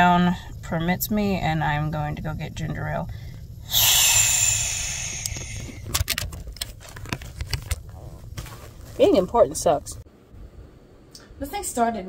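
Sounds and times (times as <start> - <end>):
low rumble: 0.0 - 11.1
loud hiss: 3.6 - 5.9
phone handling noise: 5.8 - 7.9.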